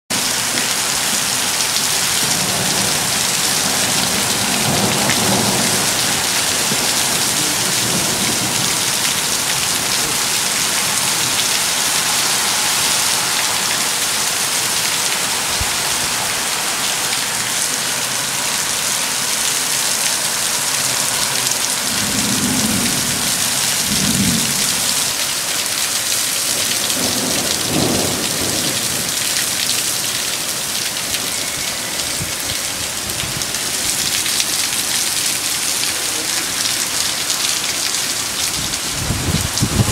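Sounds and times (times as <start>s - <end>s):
heavy rain pouring: 0.1s - 39.9s
thunder rumbling: 1.6s - 16.3s, 21.8s - 25.2s, 26.6s - 29.6s, 38.5s - 39.9s.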